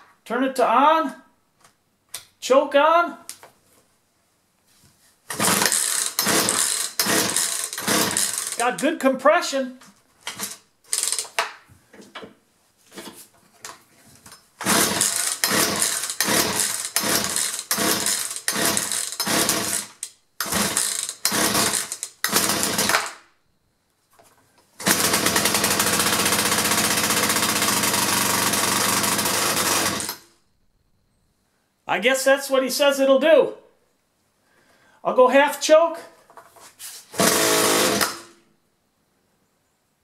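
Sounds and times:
chainsaw engine running: 0:05.3 - 0:08.8, 0:10.4 - 0:11.2, 0:14.6 - 0:23.1, 0:24.8 - 0:30.2, 0:37.1 - 0:38.3
recoil starter pulls: 0:05.3 - 0:08.8, 0:10.2 - 0:11.4, 0:14.6 - 0:23.2, 0:24.8 - 0:30.3, 0:37.1 - 0:38.4.

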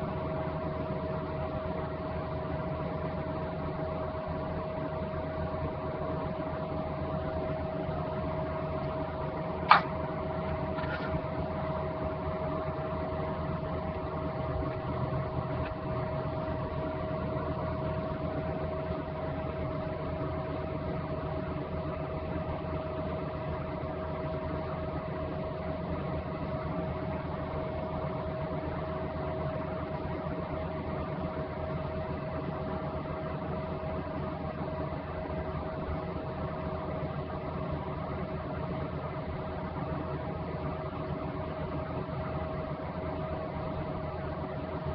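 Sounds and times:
constant mid-pitched tone: 0:00.0 - 0:44.9
steady mechanical hum: 0:00.0 - 0:44.9
sharp click: 0:09.7 - 0:10.0.

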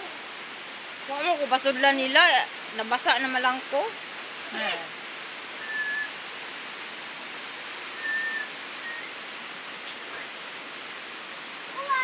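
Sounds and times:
steady rain hissing: 0:00.0 - 0:12.0.

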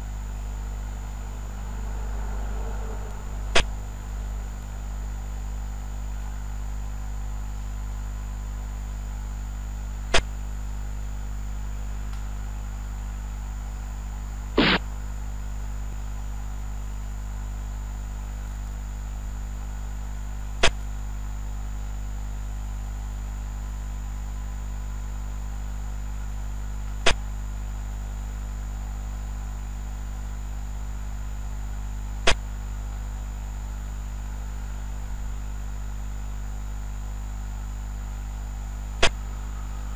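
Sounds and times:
low electrical hum: 0:00.0 - 0:39.9.

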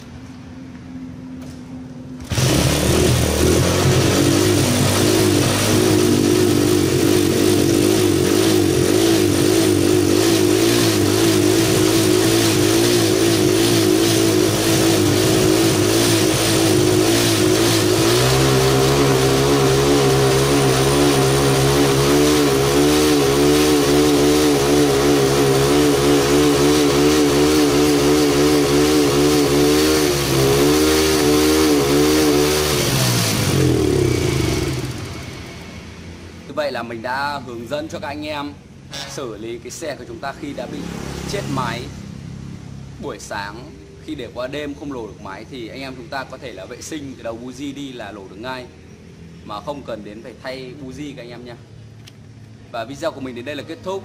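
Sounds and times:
motorcycle engine running: 0:00.0 - 0:36.5.

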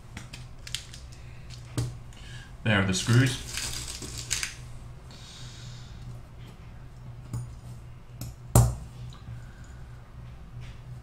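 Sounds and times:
low steady hum: 0:00.0 - 0:11.0
metal parts clicking: 0:03.1 - 0:04.6.

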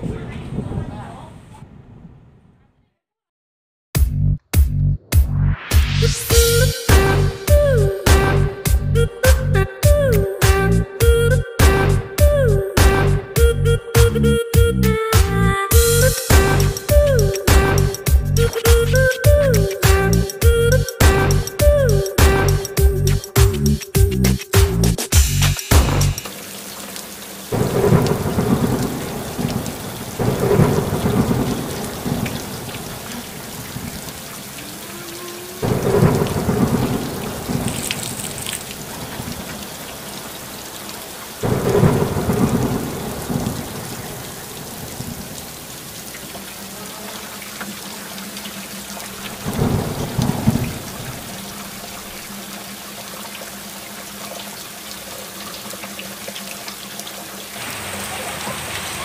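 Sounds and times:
rolling thunder: 0:00.0 - 0:02.6, 0:27.5 - 0:34.2, 0:35.6 - 0:39.5, 0:41.4 - 0:45.6, 0:49.4 - 0:51.5
steady rain hiss: 0:15.3 - 0:59.0.

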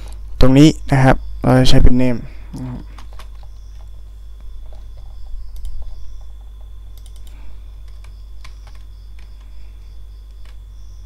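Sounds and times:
low electrical hum: 0:00.0 - 0:11.0
keyboard and mouse clicks: 0:04.6 - 0:09.5, 0:10.3 - 0:10.6.

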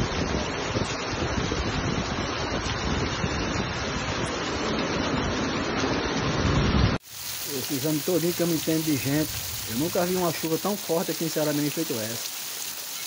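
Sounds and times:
wind buffeting microphone: 0:00.0 - 0:05.4
heavy rain hissing: 0:00.0 - 0:13.0.

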